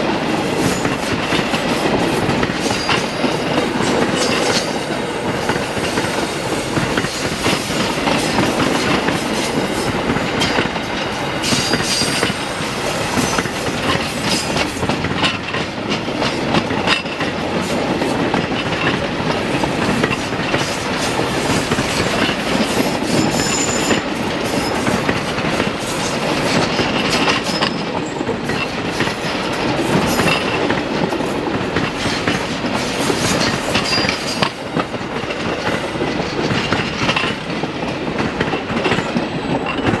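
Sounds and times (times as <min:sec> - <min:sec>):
wheels clacking over rail joints: 0:00.0 - 0:40.0
high-pitched wheel squeals: 0:23.1 - 0:25.0.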